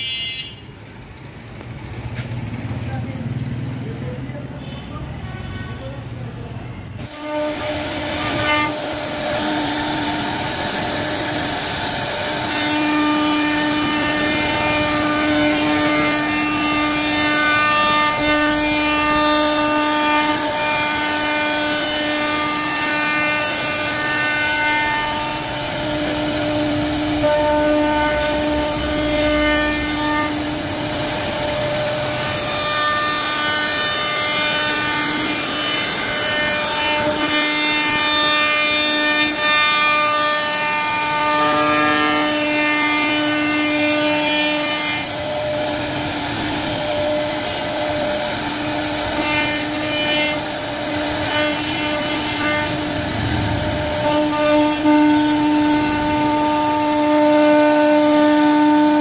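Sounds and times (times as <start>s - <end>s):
rushing noise of wood cutting: 7.0s - 59.0s
router spindle whining: 7.3s - 43.2s.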